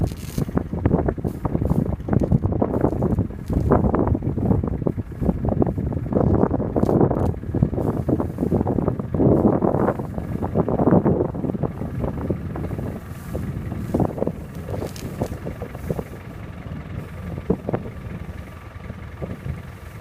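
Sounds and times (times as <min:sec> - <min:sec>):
grass rustling and tearing: 0:00.0 - 0:11.4, 0:12.2 - 0:16.4
wind rumbling on microphone: 0:00.0 - 0:20.0.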